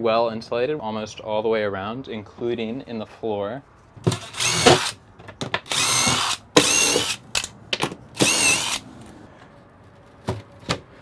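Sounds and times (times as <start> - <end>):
impact driver whining: 4.1 - 5.0, 5.6 - 7.5, 8.2 - 8.8.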